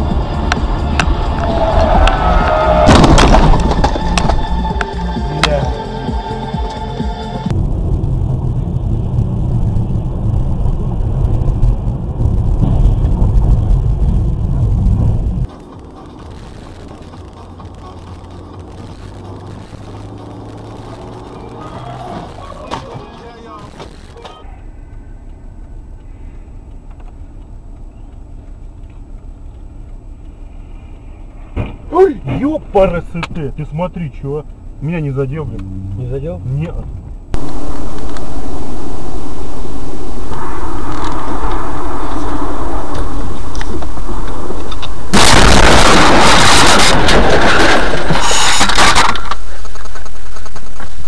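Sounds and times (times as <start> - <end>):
low hum: 0.0 - 21.6, 35.4 - 51.0
car crash: 0.9 - 4.6, 7.5 - 15.5, 37.4 - 51.0
car engine rumble inside cabin: 6.2 - 45.4.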